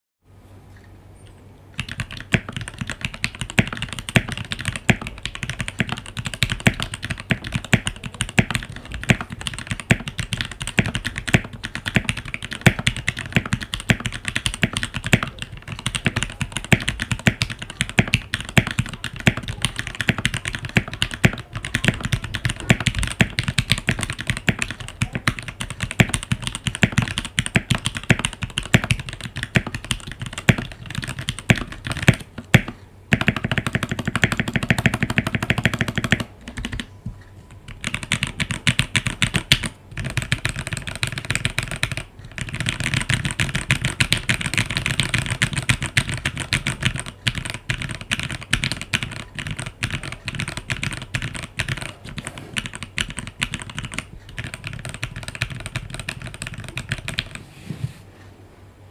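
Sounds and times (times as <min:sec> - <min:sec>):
fast typing on mechanical keyboard: 0:01.8 - 0:36.9, 0:37.5 - 0:57.4.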